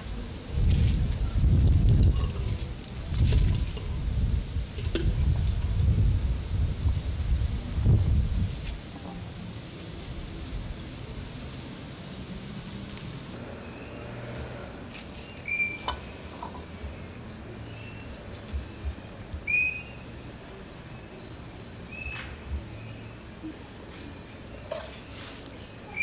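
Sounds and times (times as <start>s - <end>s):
sharp cricket chirps: 0.4s - 26.0s
cricket trilling: 10.3s - 26.0s.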